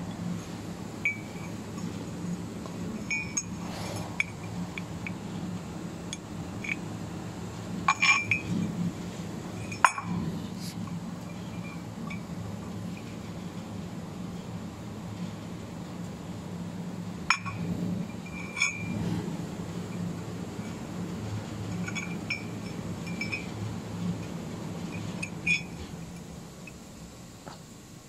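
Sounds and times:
steady low hum: 0.0s - 28.0s
metal pieces clinking: 7.9s - 8.6s.

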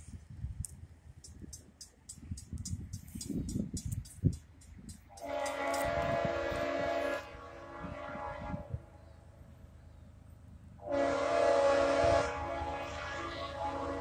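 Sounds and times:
locomotive air horn blasts: 5.1s - 9.1s, 10.8s - 14.0s.

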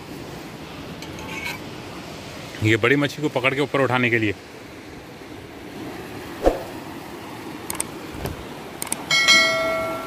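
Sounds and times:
low steady background noise: 0.0s - 10.0s
click: 8.8s - 9.0s.

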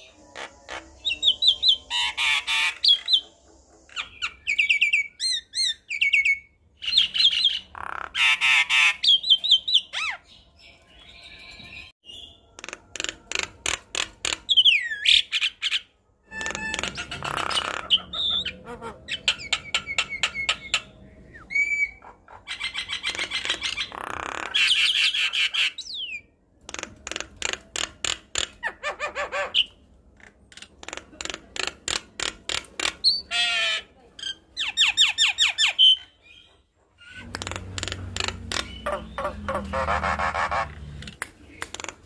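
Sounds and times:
bird chattering and whistling: 0.0s - 10.4s, 14.3s - 26.3s, 32.8s - 42.0s.

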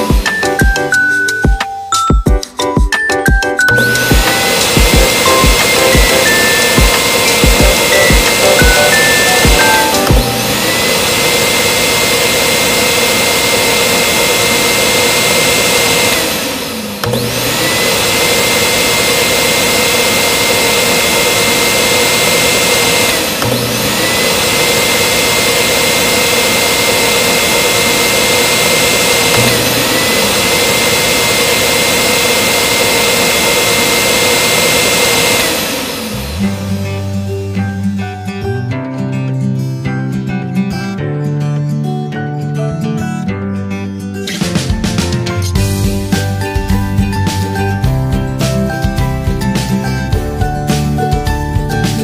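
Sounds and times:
handheld vacuum motor whining: 0.0s - 1.6s, 3.7s - 37.9s.

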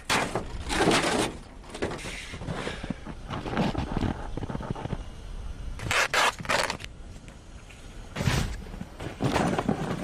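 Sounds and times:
material rasping tears: 5.8s - 6.9s.

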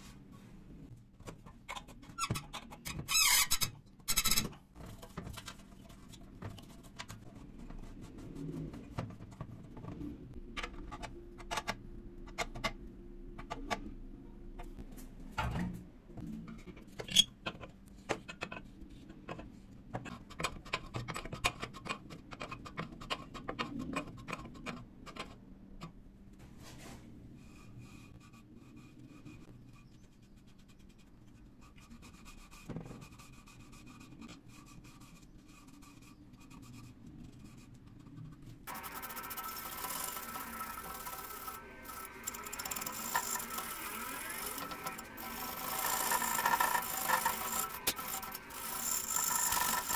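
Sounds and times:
faint steady hum: 4.8s - 16.8s
hands working metal pipe fittings: 38.7s - 49.9s.

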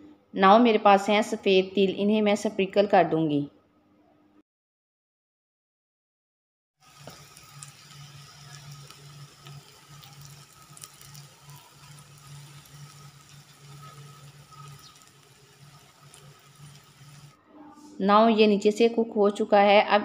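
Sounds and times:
oil sizzling and crackling in a pan: 6.8s - 17.4s
low hum: 6.9s - 17.4s.

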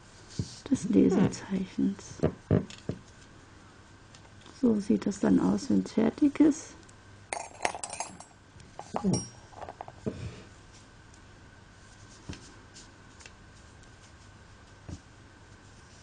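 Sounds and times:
metal tools clinking: 7.3s - 8.3s.

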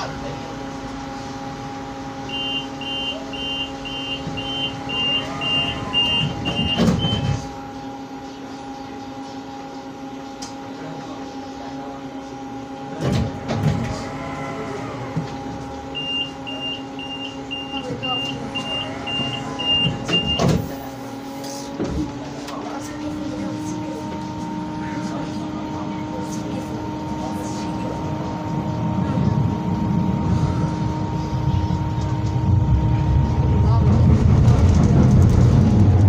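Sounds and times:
tram equipment humming: 0.0s - 36.0s
tram doors clunking: 1.7s - 7.8s, 12.8s - 22.8s, 27.1s - 36.0s
door warning beeps: 2.3s - 7.5s, 15.9s - 20.8s.

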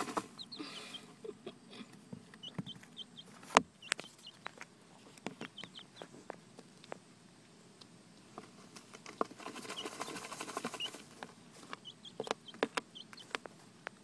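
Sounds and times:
chicks dust bathing in sand: 0.0s - 1.1s, 2.4s - 6.1s, 8.5s - 13.6s
chicks peeping: 0.0s - 7.0s, 8.8s - 14.0s.

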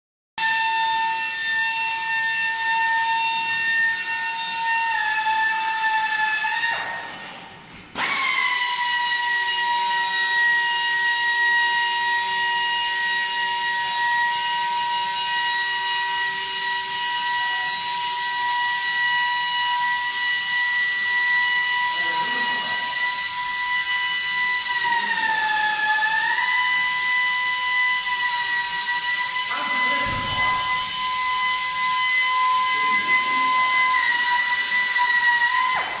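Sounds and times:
polishing spindle whining: 15.4s - 35.7s.

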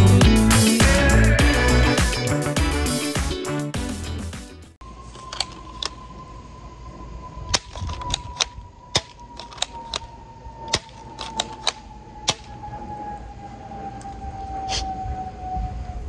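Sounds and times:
high tone dropping in pitch: 4.8s - 16.0s
salt gun clicks and snaps: 7.5s - 10.1s, 10.7s - 12.5s.

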